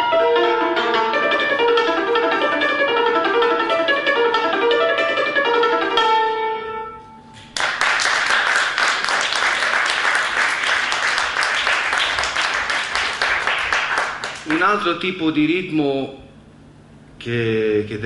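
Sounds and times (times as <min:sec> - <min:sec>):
cimbalom dance tune: 0:00.0 - 0:07.0
audience applause: 0:07.5 - 0:14.8.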